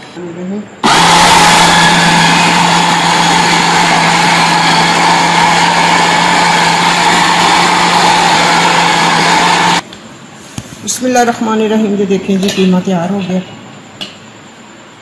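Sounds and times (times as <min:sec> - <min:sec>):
electric food chopper running: 0:00.8 - 0:09.8.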